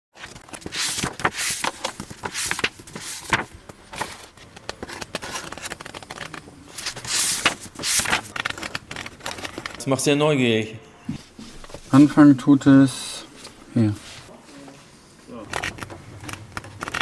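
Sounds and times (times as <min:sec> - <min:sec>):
book pages rustling: 0:00.2 - 0:09.9, 0:11.2 - 0:12.1, 0:15.4 - 0:17.0.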